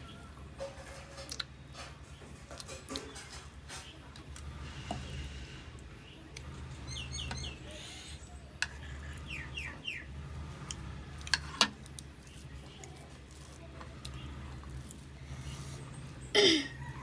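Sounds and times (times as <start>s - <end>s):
rice mixed and eaten by hand: 0.0s - 17.0s
bird chirping: 6.0s - 10.2s.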